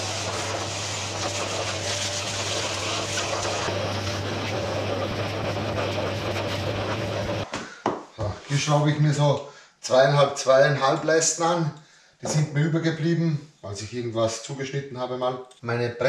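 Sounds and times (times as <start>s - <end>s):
air rushing through hose: 0.0s - 7.5s
dust extractor running: 0.0s - 7.5s.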